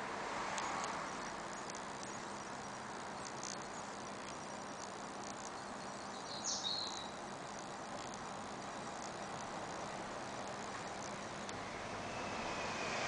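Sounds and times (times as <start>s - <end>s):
steady background hiss: 0.0s - 13.0s
high chirps and ticks: 0.4s - 13.0s.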